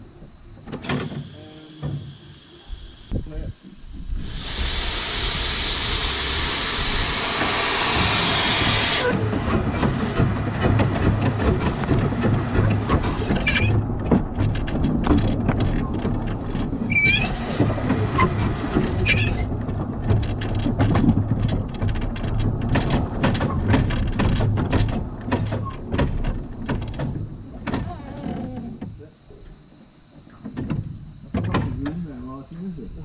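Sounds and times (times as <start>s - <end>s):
steam locomotive rumbling: 0.0s - 29.2s
steam hissing: 1.0s - 13.8s, 16.8s - 19.5s
wheels clicking and knocking: 4.0s - 29.1s
brief squeal: 13.1s - 13.8s, 16.9s - 17.5s, 19.0s - 19.5s.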